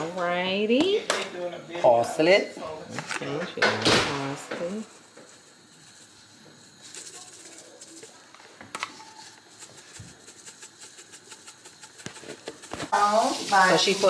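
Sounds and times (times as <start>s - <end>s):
shaker rattling dried flakes: 4.6s - 14.0s.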